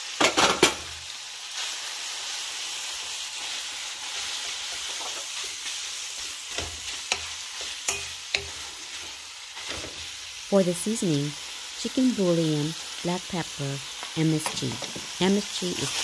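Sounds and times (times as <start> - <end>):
meat sizzling in hot oil: 0.0 - 16.0.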